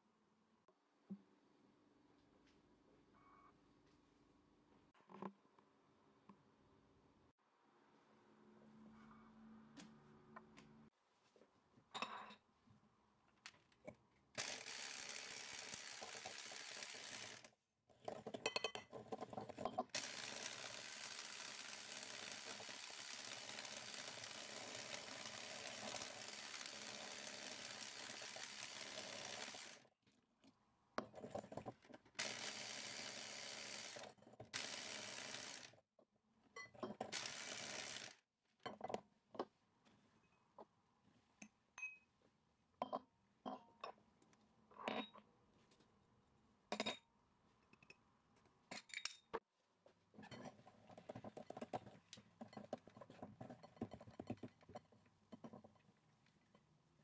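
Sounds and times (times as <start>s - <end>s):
electric hand mixer beating: 14.4s - 17.5s, 20.0s - 29.9s, 32.2s - 35.7s, 37.1s - 38.1s.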